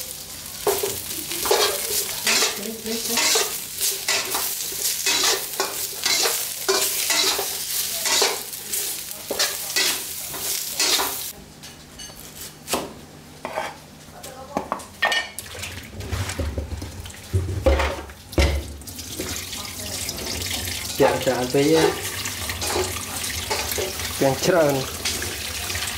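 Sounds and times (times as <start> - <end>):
food sizzling: 0.0 - 11.4, 16.8 - 25.9
metal spatula scraping in wok: 1.4 - 8.5, 9.3 - 11.2
pot clattering in steel sink: 15.0 - 19.4.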